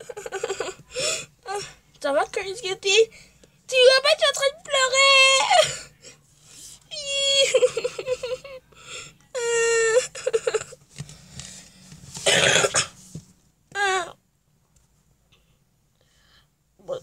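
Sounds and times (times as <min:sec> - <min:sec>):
person crying and sobbing: 0:00.0 - 0:01.8, 0:05.3 - 0:06.2, 0:06.9 - 0:10.8.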